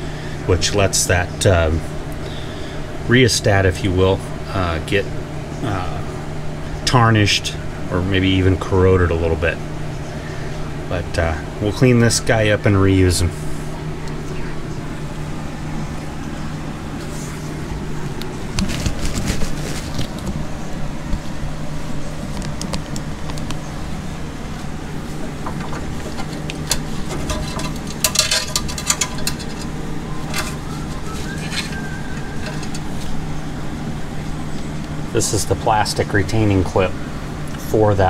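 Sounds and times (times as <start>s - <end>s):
electric fan humming: 0.0s - 38.0s
clicks and rattles of parts: 25.4s - 33.2s.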